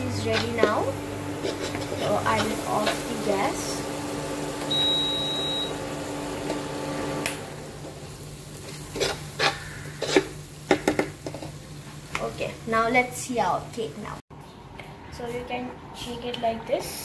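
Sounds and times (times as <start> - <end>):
metal spoon scraping frying pan: 1.4 - 3.1, 8.6 - 10.4
short high beep: 4.7 - 5.8.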